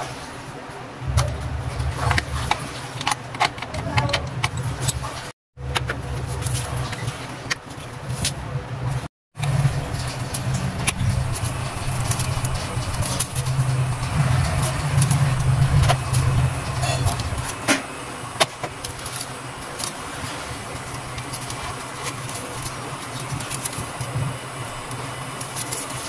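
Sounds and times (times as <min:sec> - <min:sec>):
low steady rumble: 0:00.9 - 0:02.9, 0:07.9 - 0:26.0
paper crinkling: 0:09.5 - 0:17.6, 0:18.6 - 0:26.0.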